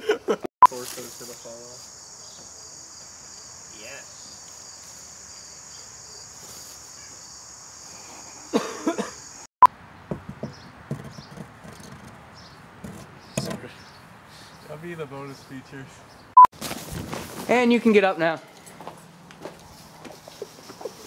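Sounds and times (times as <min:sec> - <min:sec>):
crickets chirring: 0:00.6 - 0:09.5.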